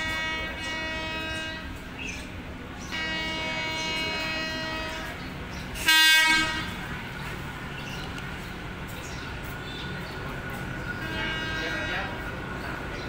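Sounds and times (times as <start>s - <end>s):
locomotive horn: 0.0s - 2.1s, 2.8s - 6.9s, 11.0s - 12.3s
locomotive running noise: 0.0s - 13.0s.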